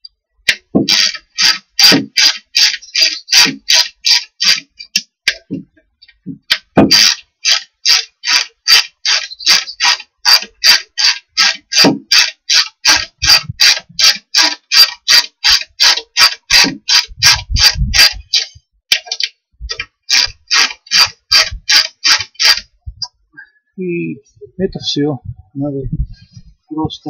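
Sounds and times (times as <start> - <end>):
ratchet wrench strokes: 0.5 - 5.5, 6.5 - 22.7.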